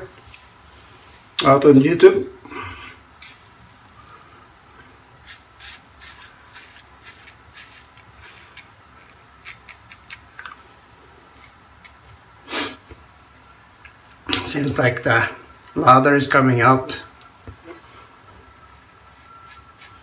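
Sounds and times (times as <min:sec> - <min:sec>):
razor scraping stubble: 0:03.2 - 0:03.5, 0:05.2 - 0:10.2.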